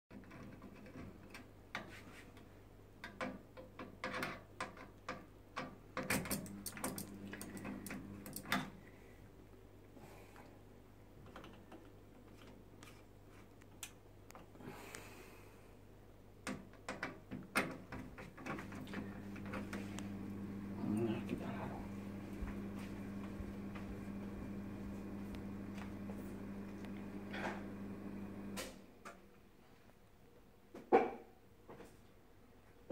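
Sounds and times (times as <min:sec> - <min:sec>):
faint low hum: 0:18.4 - 0:30.2.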